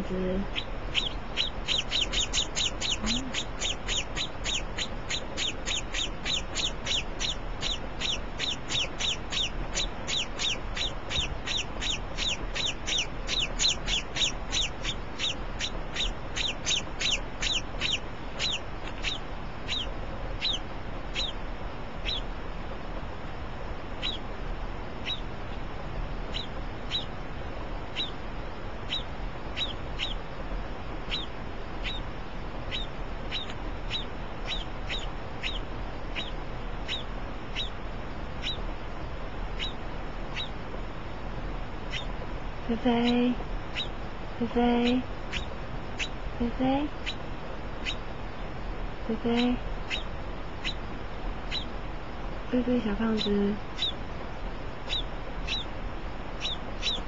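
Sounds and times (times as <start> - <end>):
chick cheeping: 0.0 - 21.4, 22.0 - 22.3, 24.0 - 24.3, 25.0 - 25.3, 26.3 - 27.1, 27.9 - 28.2, 28.9 - 30.2, 31.1 - 32.1, 32.7 - 37.8, 38.4 - 38.6, 39.6 - 40.6, 41.9 - 47.2, 49.1 - 50.9, 51.5 - 51.7, 52.6 - 54.0, 54.8 - 55.8, 56.4 - 57.0.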